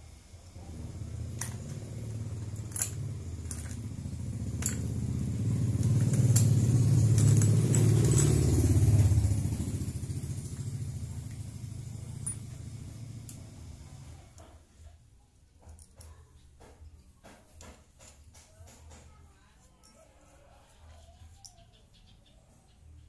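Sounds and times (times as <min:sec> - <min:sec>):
vehicle engine running: 0:00.0 - 0:14.5
metallic clicks of engine parts: 0:01.3 - 0:08.8.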